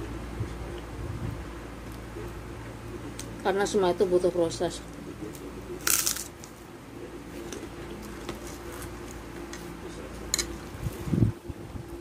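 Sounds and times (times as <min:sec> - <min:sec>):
steady low hum: 0:00.0 - 0:12.0
cracker crackle: 0:04.9 - 0:06.7.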